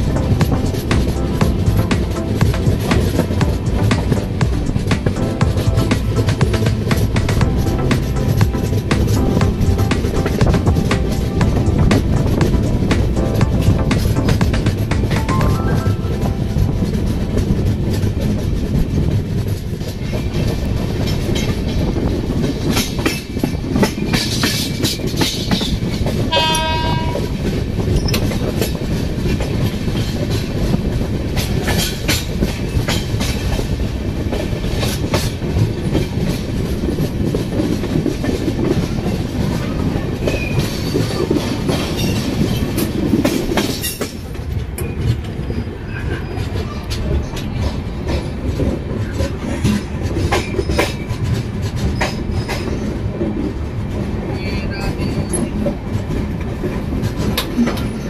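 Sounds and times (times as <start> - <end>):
train rumbling on track: 0.0 - 58.0
wheels clacking over rail joints: 0.0 - 58.0
train horn blast: 26.3 - 27.5.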